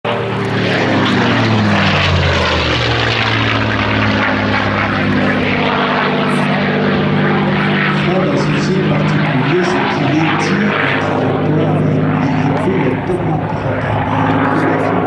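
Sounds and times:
propeller aircraft engine: 0:00.0 - 0:15.0.

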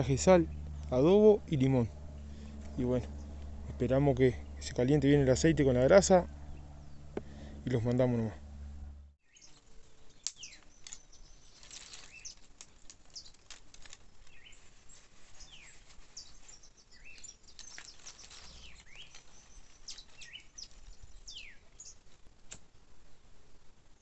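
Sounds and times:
birds calling: 0:00.0 - 0:22.2
light clicks and crackles: 0:10.2 - 0:14.8, 0:17.2 - 0:21.0.

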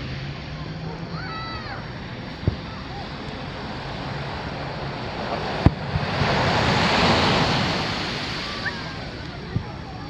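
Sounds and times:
surf washing on beach: 0:00.0 - 0:10.0
distant firework boom: 0:02.4 - 0:03.3, 0:05.1 - 0:07.9.

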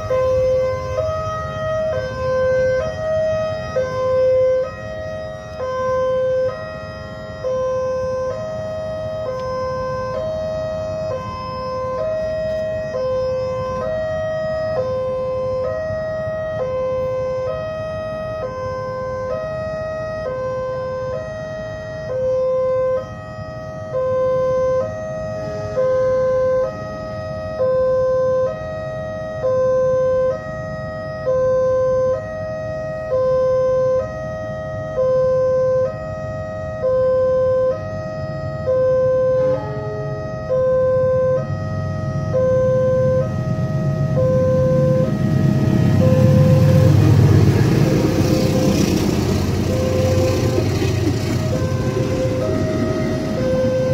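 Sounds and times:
level-crossing two-tone alarm: 0:00.0 - 0:53.9
low rumble: 0:40.8 - 0:53.9.

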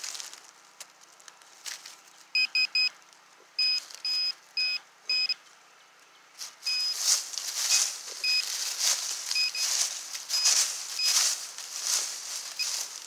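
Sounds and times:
metal detector beeping: 0:02.4 - 0:02.9, 0:03.6 - 0:05.4, 0:06.6 - 0:13.0.

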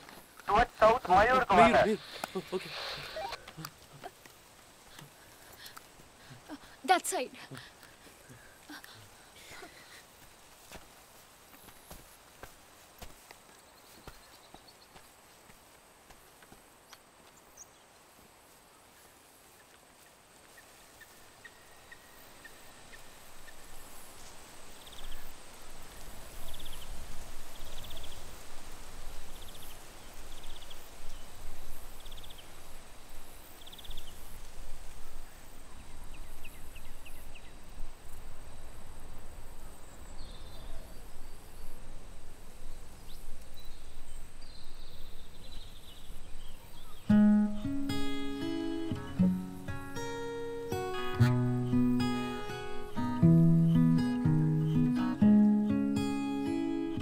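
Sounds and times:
high insect hum: 0:00.2 - 0:57.0
short high chirps: 0:02.8 - 0:03.5.

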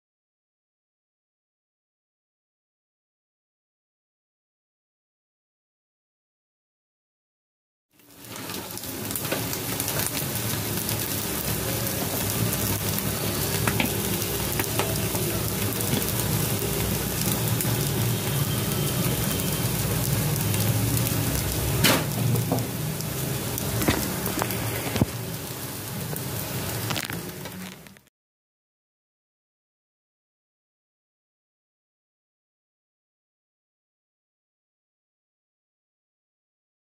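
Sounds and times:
toast sizzling in oil: 0:08.0 - 0:28.1.

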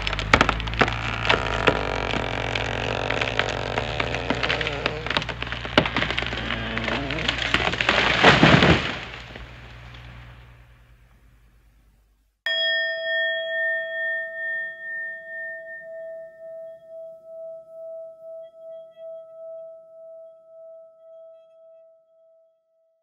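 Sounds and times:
rustling: 0:00.0 - 0:12.0
metal bell ringing: 0:12.5 - 0:16.9.

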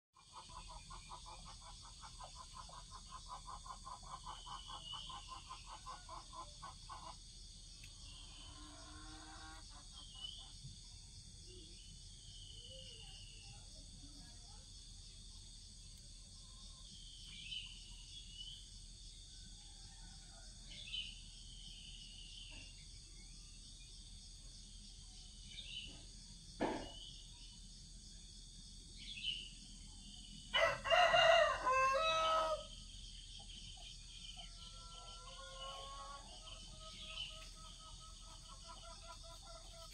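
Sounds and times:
high insect trill: 0:00.5 - 0:39.9
single knock: 0:26.6 - 0:27.0
rooster crowing: 0:30.5 - 0:32.8
bird chirps: 0:33.1 - 0:39.9.

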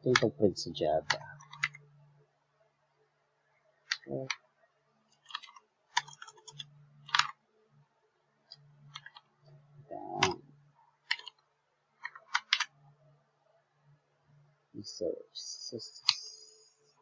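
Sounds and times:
keyboard keystrokes clicking: 0:05.2 - 0:07.4, 0:11.0 - 0:11.4, 0:12.0 - 0:12.7.

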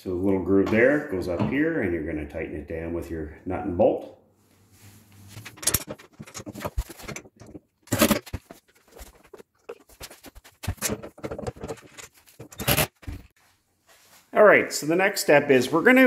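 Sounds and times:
metal pieces clinking and rattling: 0:05.5 - 0:07.3.

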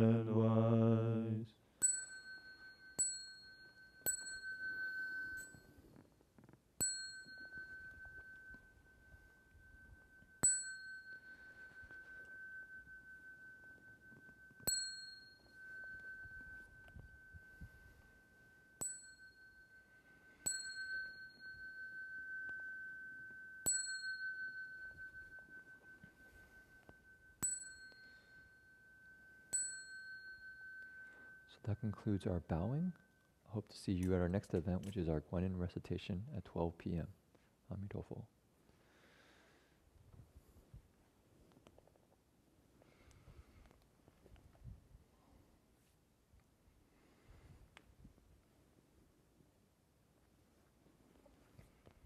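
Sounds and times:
small bell ringing: 0:01.7 - 0:33.5.

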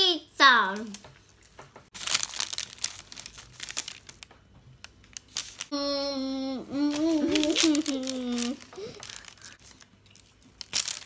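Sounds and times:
baking paper crinkling: 0:00.8 - 0:05.7, 0:06.7 - 0:11.0.

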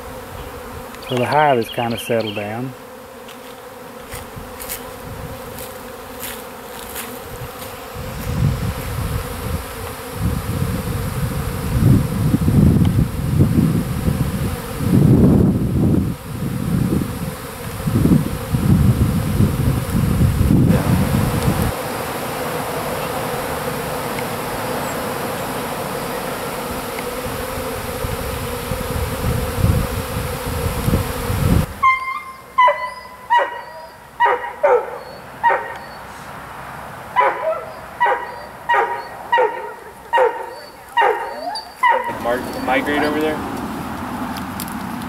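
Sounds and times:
bee swarm buzzing: 0:00.0 - 0:45.0
dog barking: 0:32.0 - 0:36.0, 0:37.2 - 0:42.1.

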